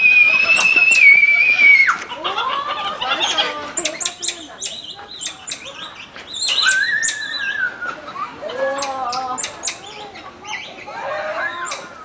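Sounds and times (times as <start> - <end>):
monkeys peeping and twittering: 0.0 - 12.0.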